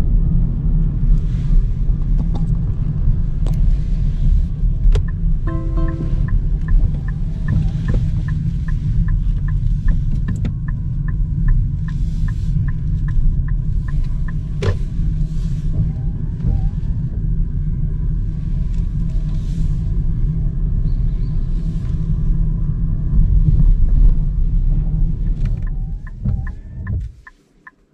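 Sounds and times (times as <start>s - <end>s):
tyres rumbling on wet road: 0.0s - 27.8s
turn signal ticking: 3.4s - 20.8s, 21.9s - 27.9s.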